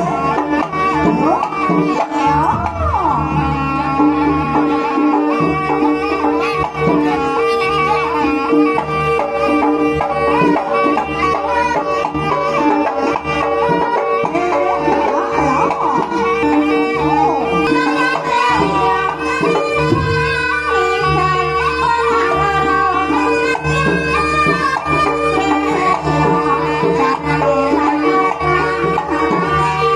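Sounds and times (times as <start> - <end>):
hand drum patterns: 0.0 - 6.1, 7.8 - 22.0
gamelan music over loudspeakers: 0.0 - 29.9.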